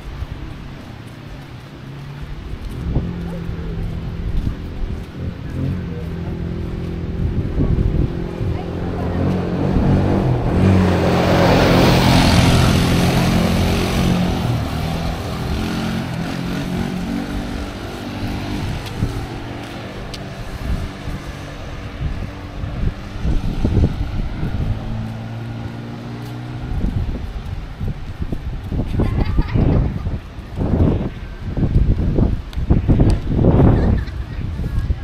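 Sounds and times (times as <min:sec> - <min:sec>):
vehicle engine passing: 0:00.0 - 0:35.0.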